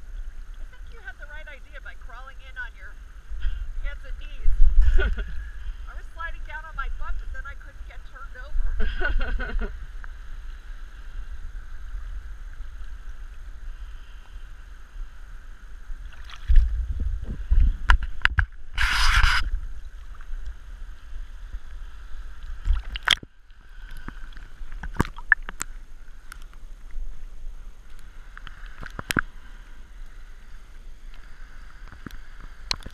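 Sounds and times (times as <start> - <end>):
water sloshing and rumbling: 0.0 - 32.9
muffled underwater clicks: 17.6 - 20.6, 22.4 - 26.6, 27.8 - 29.4, 31.0 - 32.9.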